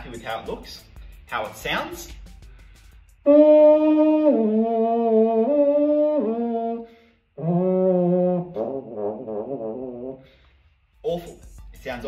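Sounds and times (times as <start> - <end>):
french horn sustained notes: 3.2 - 10.2.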